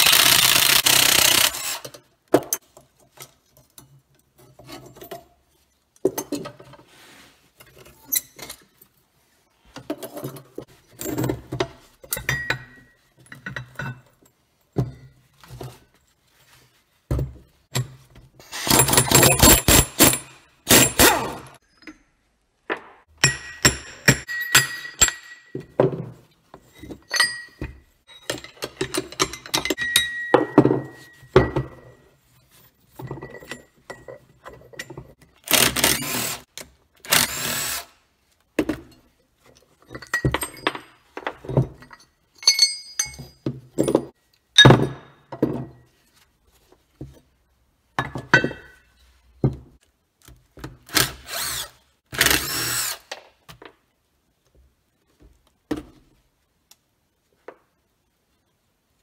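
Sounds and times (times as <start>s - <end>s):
cordless drill bursts: 0.0s - 1.8s, 51.0s - 53.1s
metal parts clinking and knocking: 18.6s - 22.2s, 26.7s - 32.0s, 39.7s - 44.2s.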